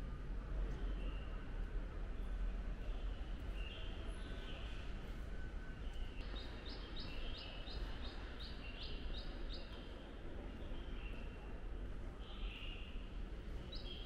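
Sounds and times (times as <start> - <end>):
small bird singing: 5.9 - 9.8.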